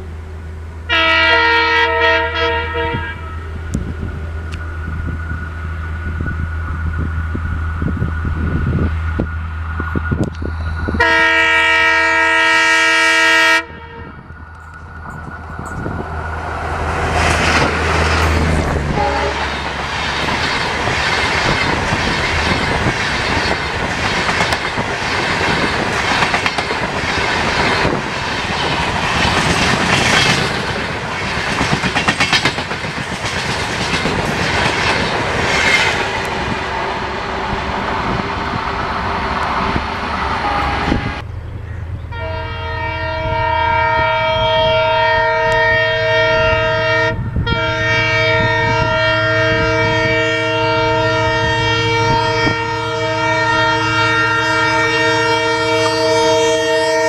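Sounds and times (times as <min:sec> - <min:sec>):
train wheels rushing on rail: 0:00.0 - 0:42.2, 0:42.8 - 0:57.0
locomotive horn blast: 0:00.8 - 0:04.2, 0:10.2 - 0:14.4, 0:16.8 - 0:19.8, 0:40.3 - 0:41.2, 0:42.0 - 0:57.0
clickety-clack over rail joints: 0:14.5 - 0:36.6
deep diesel engine rumble: 0:35.2 - 0:43.9.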